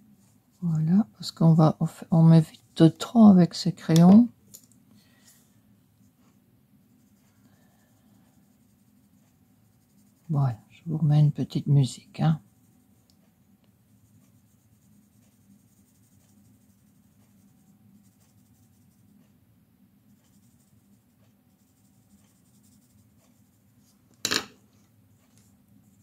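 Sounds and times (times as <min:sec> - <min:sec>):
pencil scratching on paper: 0:06.9 - 0:10.7, 0:11.5 - 0:13.0, 0:13.8 - 0:19.3, 0:20.0 - 0:23.9.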